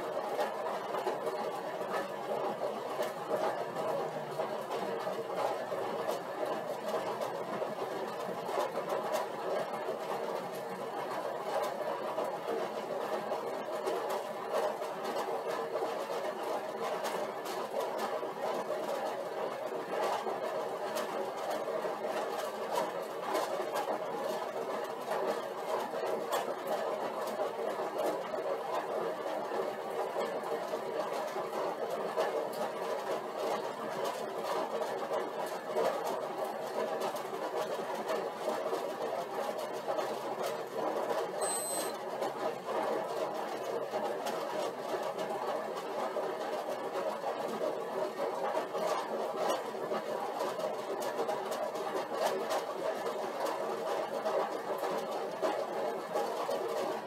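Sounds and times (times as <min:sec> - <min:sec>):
exercise bike whirring: 0:00.0 - 0:50.1.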